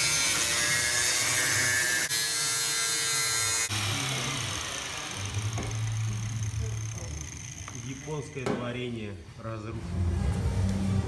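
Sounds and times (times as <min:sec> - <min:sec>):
angle grinder cutting metal pipe: 0:00.0 - 0:08.4.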